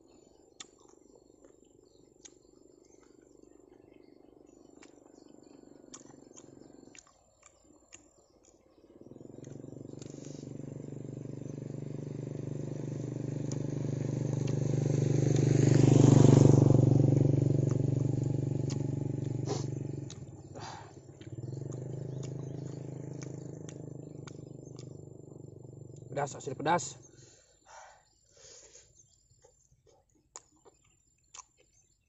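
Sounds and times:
engine passing by: 4.5s - 7.0s, 9.0s - 27.2s.

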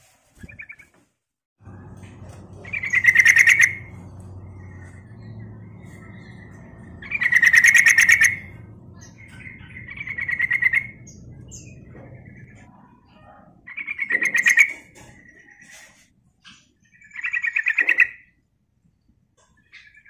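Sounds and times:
bulbul chattering song: 1.6s - 15.6s.

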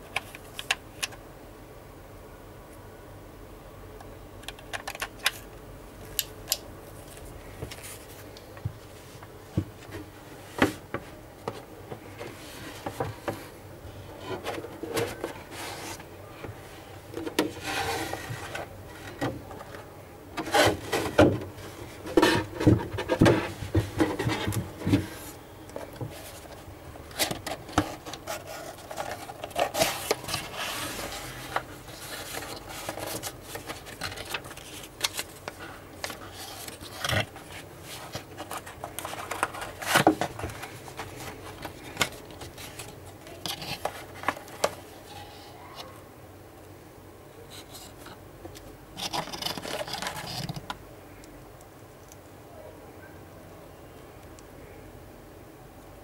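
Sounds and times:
cardboard rubbing and scraping: 14.2s - 16.1s, 17.4s - 19.2s, 20.4s - 21.3s, 21.9s - 25.4s, 27.5s - 34.9s.

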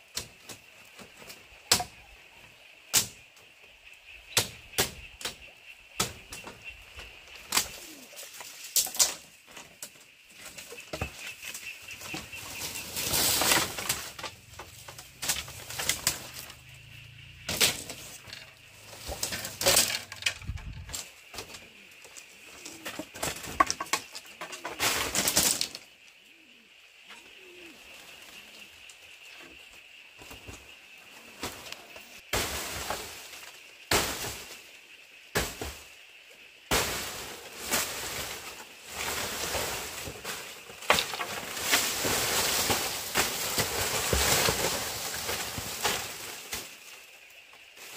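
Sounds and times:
dry thatch rustling and crackling: 6.0s - 26.5s, 27.1s - 47.9s
bamboo poles knocking: 17.5s - 21.6s, 22.7s - 25.8s.

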